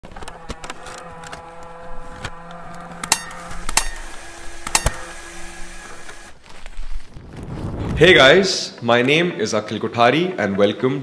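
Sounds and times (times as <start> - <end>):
steady low hum: 0.3 - 6.5
sharp metallic clanks ringing: 3.0 - 5.2.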